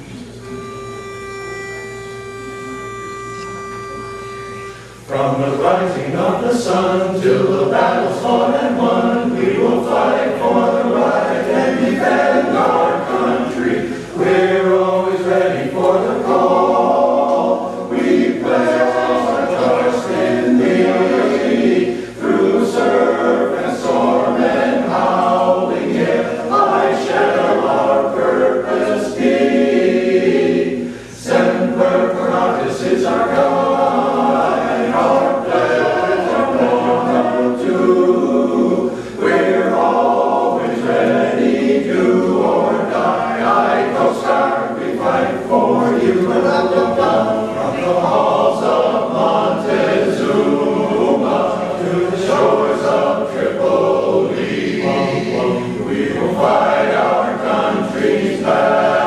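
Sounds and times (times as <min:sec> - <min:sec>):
singer breathing: 0:04.6 - 0:05.1, 0:21.9 - 0:22.2, 0:30.8 - 0:31.2, 0:38.9 - 0:39.2
men's chorus singing a cappella: 0:05.0 - 0:59.0.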